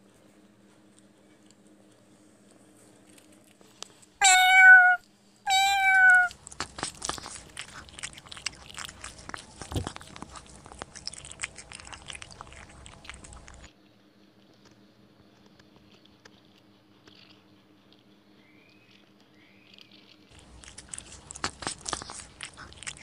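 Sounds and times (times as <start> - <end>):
cat crunching dry food: 1.0 - 13.7, 15.4 - 18.1, 19.6 - 23.0
cat meowing: 4.2 - 6.4.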